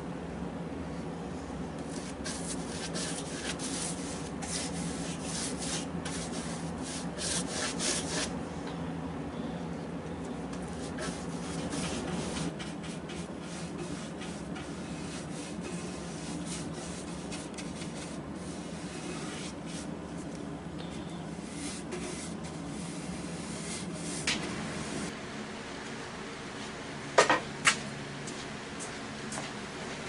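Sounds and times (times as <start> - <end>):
steady low hum: 0.0 - 30.0
paintbrush stroking varnish: 1.9 - 8.3, 10.6 - 19.9, 21.4 - 24.2.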